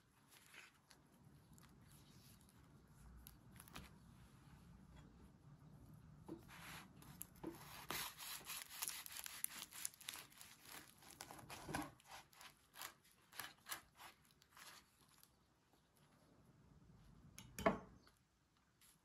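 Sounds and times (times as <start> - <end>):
knife sawing through flatbread: 7.6 - 14.8.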